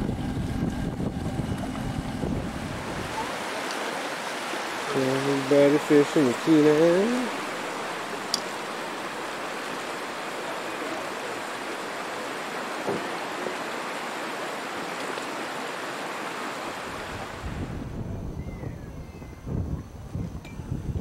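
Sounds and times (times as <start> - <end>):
wind gusts on microphone: 0.0 - 10.4, 15.3 - 21.0
river water running over gravel: 0.6 - 17.7.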